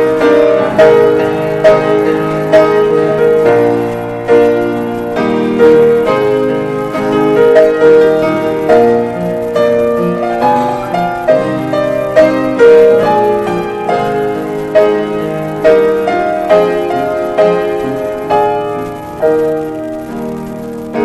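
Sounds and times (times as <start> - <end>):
grand piano playing slowly: 0.0 - 21.0.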